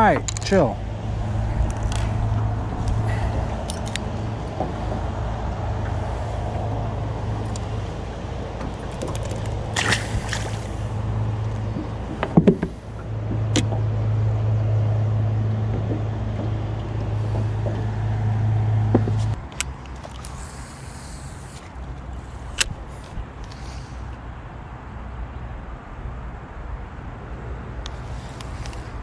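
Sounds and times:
sharp clicks and knocks: 0.0 - 0.6, 11.4 - 13.8
boat motor humming: 0.0 - 24.2.

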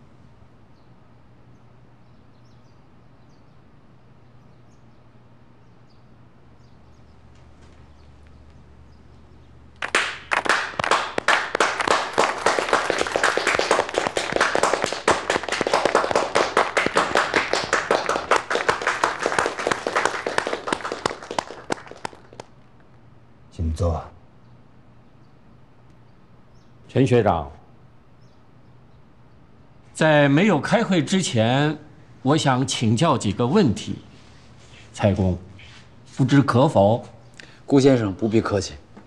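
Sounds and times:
low steady hum: 0.0 - 39.0
group of people clapping: 9.8 - 22.6.

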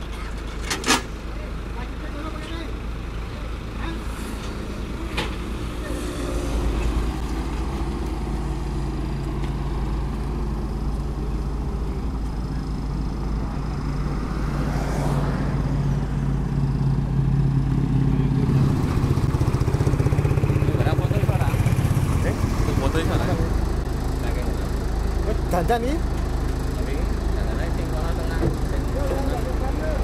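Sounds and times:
diesel engine running: 0.0 - 30.0.

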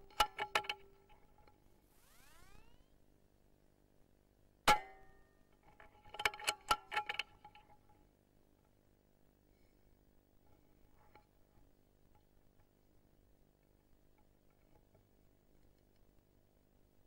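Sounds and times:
short ringing tone: 1.8 - 3.0.

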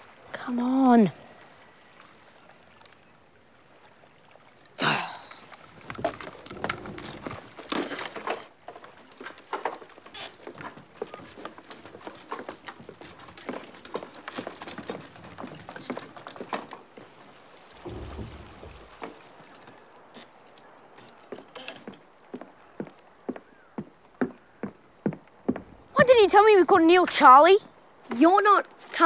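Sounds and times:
water dripping and pattering: 0.0 - 29.0
water splash: 17.0 - 20.2
small knocks: 17.8 - 26.1.

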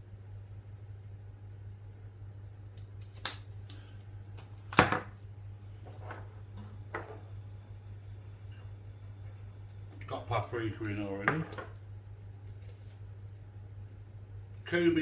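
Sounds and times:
low hum: 5.2 - 14.7.

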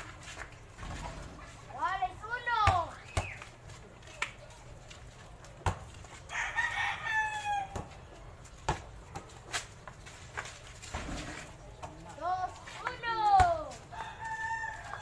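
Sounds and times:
basketball bouncing on concrete: 2.4 - 3.5, 5.5 - 6.1, 7.7 - 9.9, 12.9 - 14.2
rooster crowing: 6.3 - 7.8, 13.9 - 15.0.

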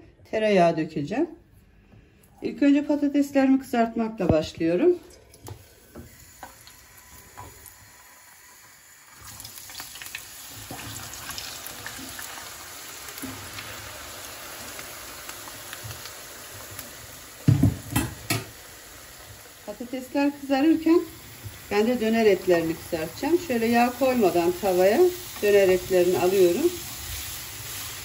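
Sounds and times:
potatoes sizzling in oil: 5.6 - 28.0.

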